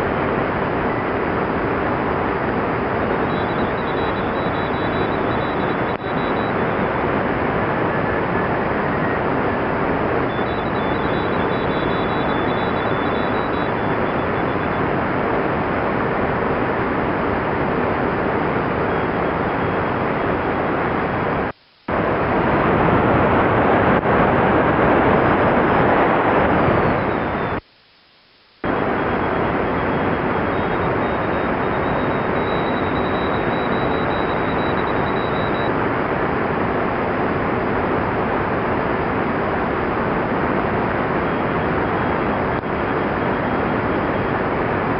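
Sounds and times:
radio static hiss: 0:00.0 - 0:44.9
faint high-pitched morse code: 0:03.1 - 0:07.0, 0:10.2 - 0:14.8, 0:28.6 - 0:35.8.

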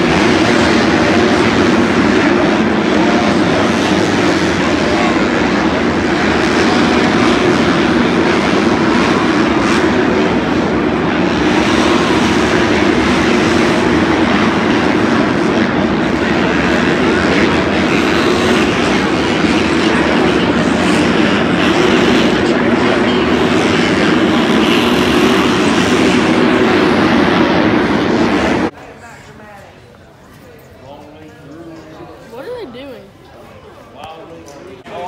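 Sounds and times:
dirt bike engines racing: 0:00.0 - 0:28.7.

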